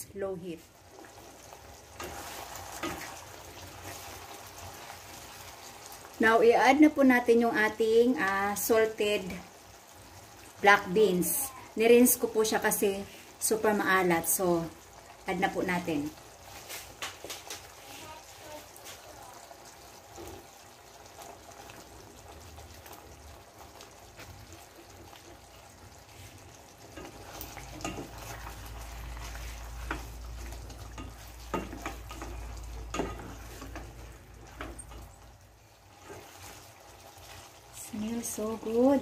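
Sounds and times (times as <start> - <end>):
sauce simmering and sizzling: 0.0 - 39.0
utensil scraping pot: 1.0 - 4.9, 26.1 - 37.7.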